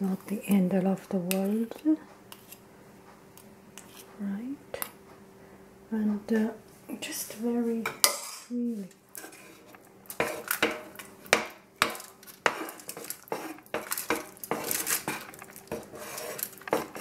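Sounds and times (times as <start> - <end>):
metal utensil scraping glass dish: 9.2 - 10.8, 12.4 - 17.0.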